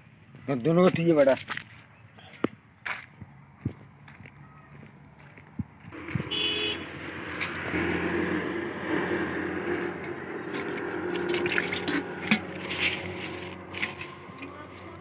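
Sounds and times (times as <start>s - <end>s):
water splashing in a bucket: 9.7s - 15.0s.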